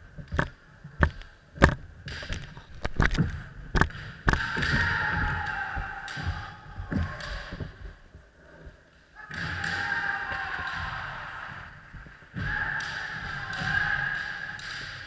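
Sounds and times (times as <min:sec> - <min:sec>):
long shouts falling in pitch: 0:04.3 - 0:07.6, 0:09.2 - 0:14.8.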